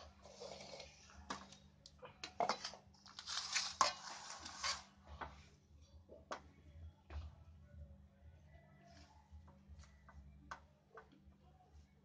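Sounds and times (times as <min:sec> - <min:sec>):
gritty rustling scrape: 0:00.1 - 0:01.1, 0:03.1 - 0:05.1.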